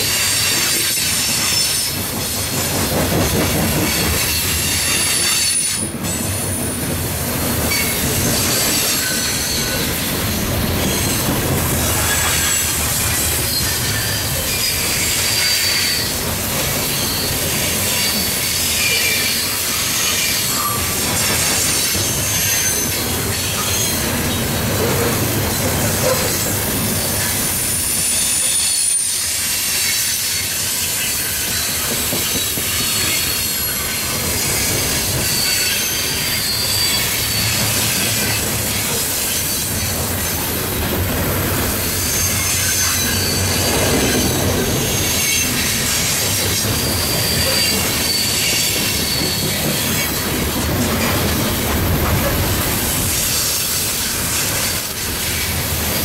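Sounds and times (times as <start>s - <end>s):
steel wheels rumbling on rail: 0.0s - 56.0s
high-pitched wheel squeals: 18.0s - 24.0s, 34.4s - 39.7s, 42.0s - 49.9s.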